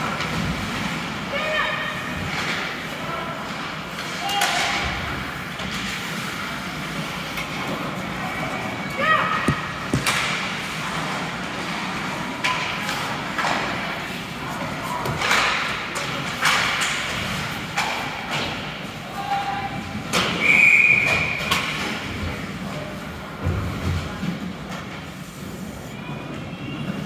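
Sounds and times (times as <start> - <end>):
puck and sticks hitting boards: 3.5 - 6.1, 9.4 - 11.8, 12.4 - 14.0, 15.0 - 18.8, 20.0 - 22.2.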